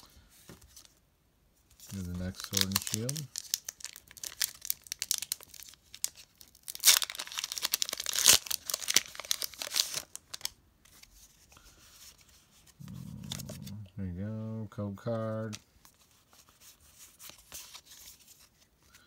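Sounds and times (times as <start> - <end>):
foil wrapper crinkling and tearing: 1.9 - 11.1.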